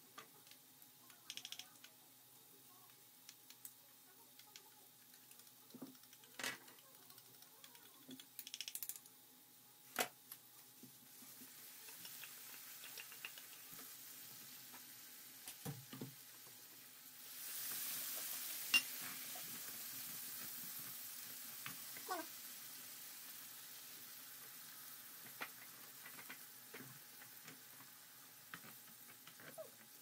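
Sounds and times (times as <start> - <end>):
onions sizzling in a pan: 10.3 - 30.0.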